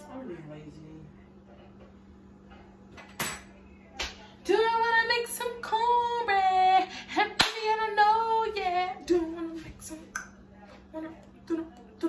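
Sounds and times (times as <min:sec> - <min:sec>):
woman singing unaccompanied: 0:04.3 - 0:12.0.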